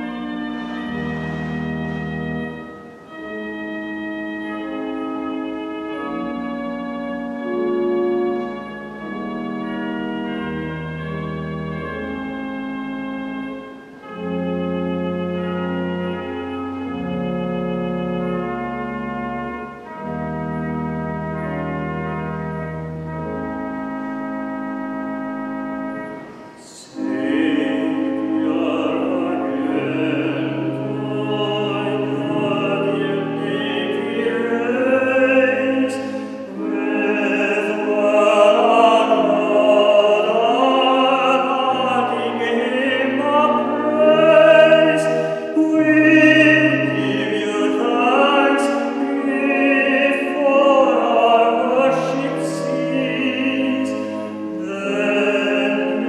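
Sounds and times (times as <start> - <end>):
organ accompaniment: 0.0 - 56.0
person singing: 26.1 - 56.0.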